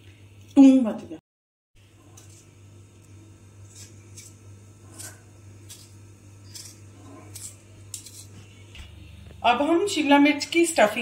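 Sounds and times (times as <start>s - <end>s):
knife cutting bell pepper: 3.7s - 8.4s.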